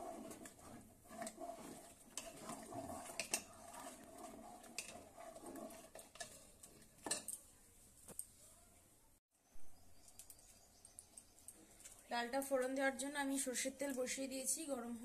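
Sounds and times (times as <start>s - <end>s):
metal spoon scraping a pot: 0.0s - 7.4s.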